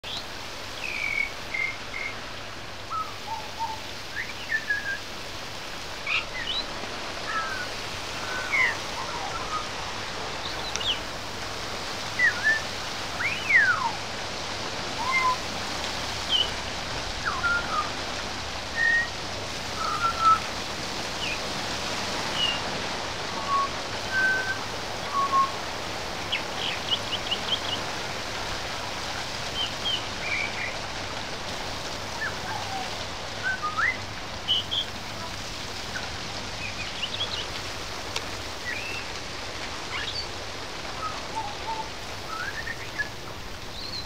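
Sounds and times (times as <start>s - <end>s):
rain hiss: 0.0s - 44.0s
bird whistling song: 0.8s - 2.2s, 2.9s - 5.1s, 6.0s - 6.6s, 7.2s - 9.7s, 10.4s - 11.0s, 12.2s - 14.0s, 15.0s - 15.4s, 16.3s - 16.6s, 17.2s - 18.0s, 18.7s - 19.2s, 19.8s - 20.5s, 22.4s - 22.6s, 23.4s - 25.6s, 29.6s - 30.8s, 32.2s - 34.9s, 38.6s - 39.1s, 39.9s - 40.3s, 41.0s - 43.1s, 43.7s - 44.0s.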